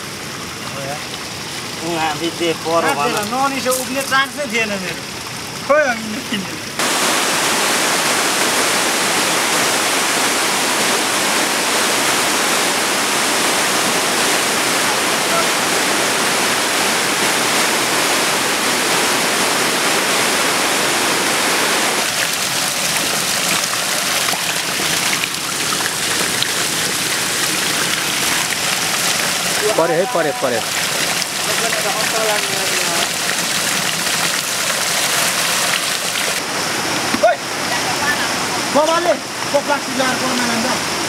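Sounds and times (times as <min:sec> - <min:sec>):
floodwater rushing over stones: 0:00.0 - 0:41.0.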